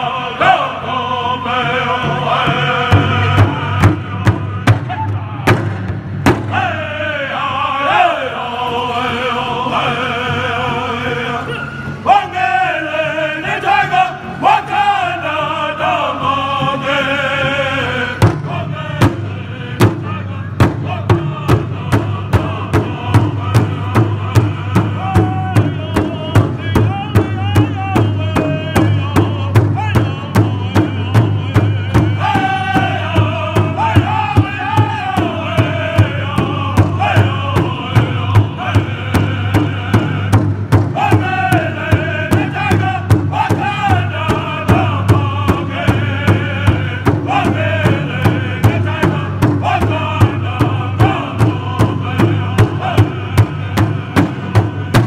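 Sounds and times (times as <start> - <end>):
group singing in unison: 0.0 - 55.0
hand drum beaten with sticks: 2.9 - 6.6, 18.2 - 55.0.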